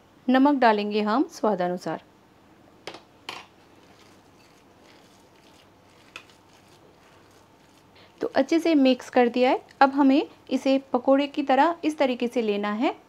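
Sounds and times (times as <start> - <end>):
hand mixing crumbly batter: 3.6 - 10.8.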